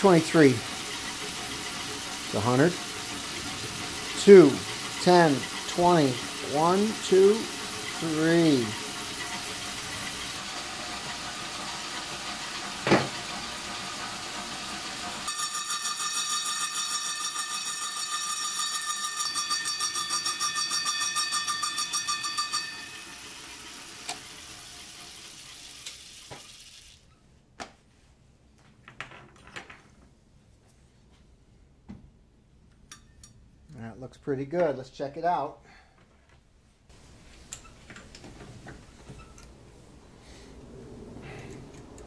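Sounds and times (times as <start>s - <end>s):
saw blade whining through metal: 0.0s - 26.2s
metal lathe running: 0.0s - 26.7s.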